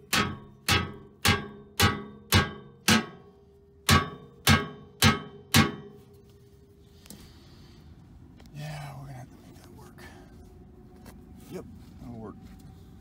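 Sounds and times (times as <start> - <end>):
hammer striking steel: 0.0 - 6.1.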